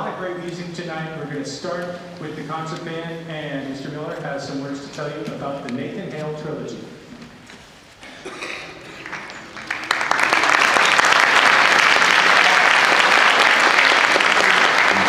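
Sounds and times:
audience applauding: 8.8s - 15.0s.

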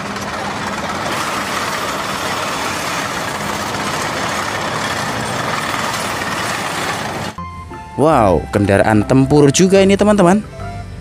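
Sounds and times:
tank engine rumbling: 0.0s - 7.4s.

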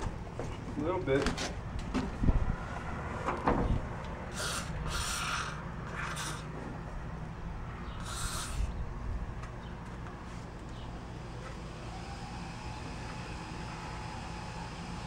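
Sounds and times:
aerosol spray hissing: 4.3s - 6.5s, 8.0s - 8.6s.

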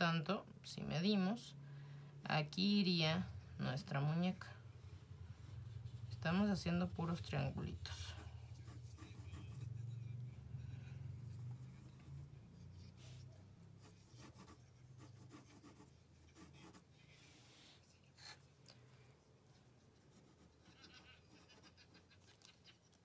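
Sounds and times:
low steady hum: 0.0s - 23.0s
pencil scratching on paper: 5.4s - 16.9s, 19.9s - 22.0s.

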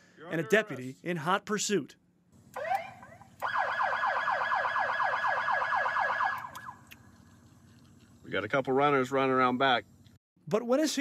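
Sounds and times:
police siren yelping: 2.6s - 6.9s.

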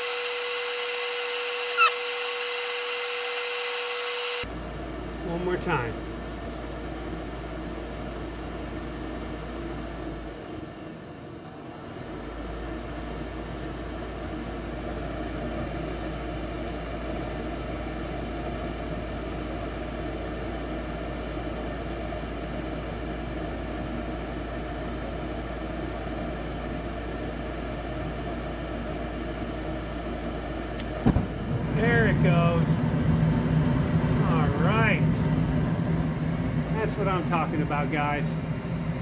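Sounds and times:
furnace fan whirring: 0.0s - 39.0s.

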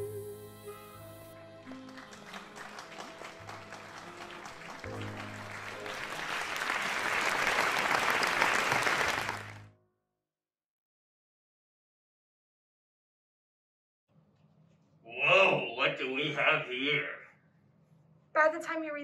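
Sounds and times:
applause: 1.5s - 9.7s.

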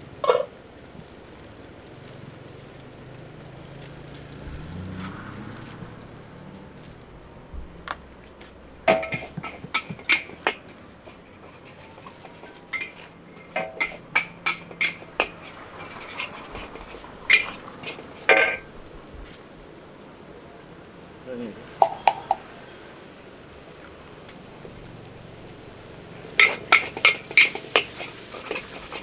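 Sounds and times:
metal utensils clanging on a pan: 0.2s - 0.5s, 8.8s - 18.7s, 26.3s - 29.0s.

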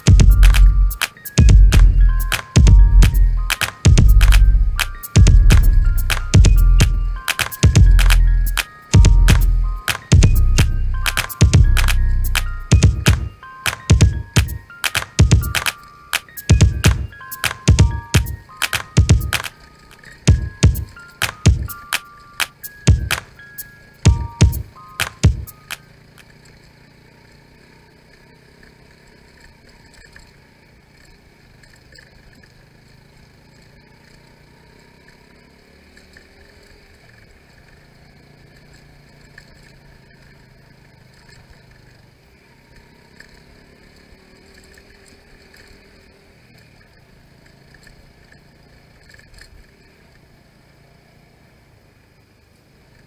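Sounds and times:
motorcycle engine running: 0.1s - 13.2s.

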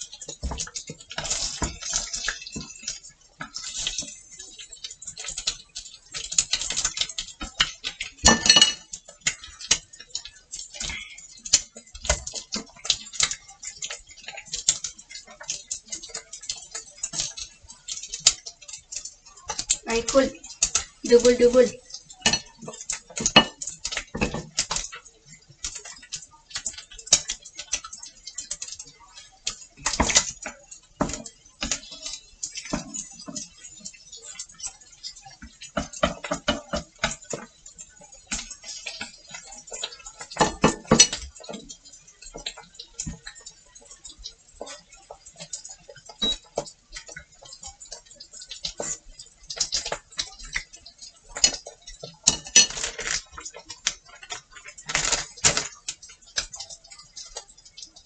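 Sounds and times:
chopsticks tapping on a plate: 7.5s - 9.0s, 22.2s - 24.6s, 35.7s - 37.5s, 38.7s - 43.2s.

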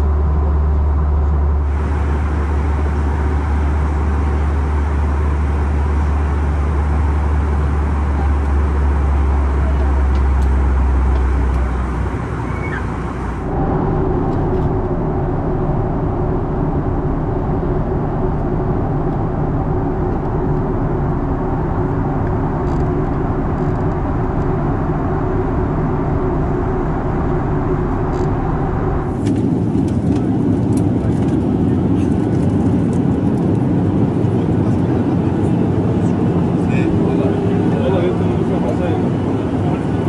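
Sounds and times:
airplane cabin engine drone: 0.0s - 40.0s.

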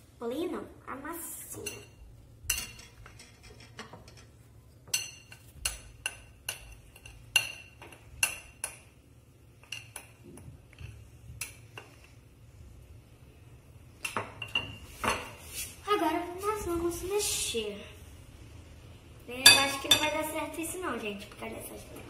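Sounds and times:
metal spoon clinking glass bowl: 4.9s - 8.8s.

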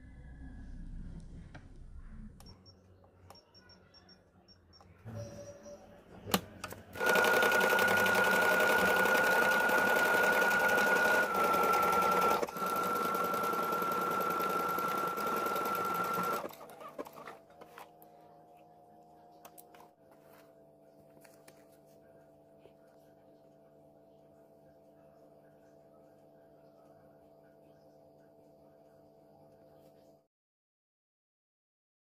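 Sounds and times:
sewing machine stitching: 6.3s - 17.4s.

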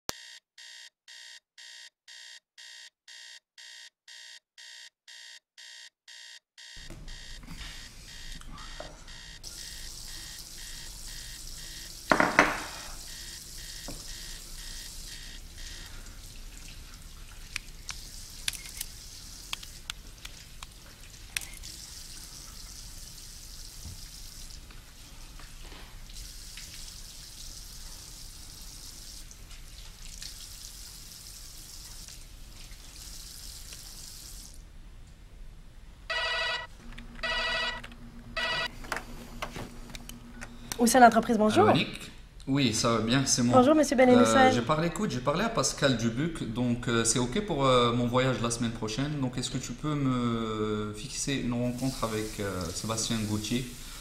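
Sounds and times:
alarm clock beeping: 0.1s - 11.9s, 13.1s - 15.9s, 36.1s - 38.7s.

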